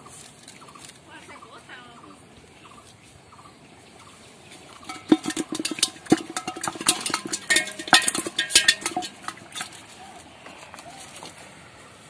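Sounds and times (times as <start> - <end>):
fish knocking in metal pot: 4.8 - 10.7.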